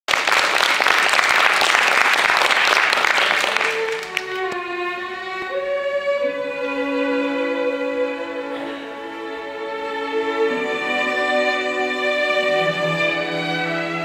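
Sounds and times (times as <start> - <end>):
audience applause: 0.0 - 4.6
bowed strings holding long notes: 3.5 - 14.0.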